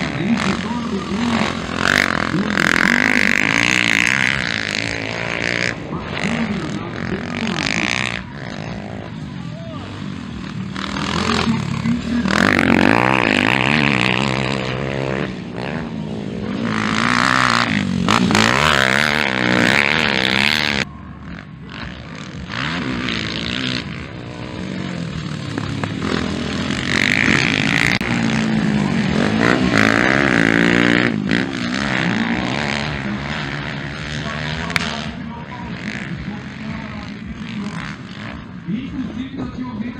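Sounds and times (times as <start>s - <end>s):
dirt bike engines revving: 0.0s - 39.9s.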